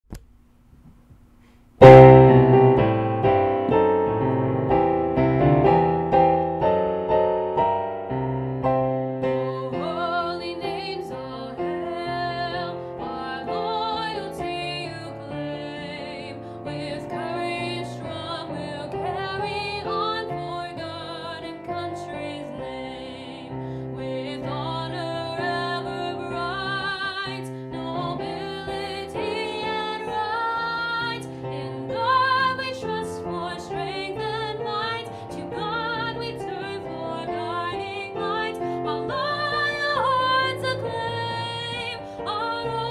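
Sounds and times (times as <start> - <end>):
piano: 0.9 - 42.9
woman singing with vibrato: 9.4 - 42.9.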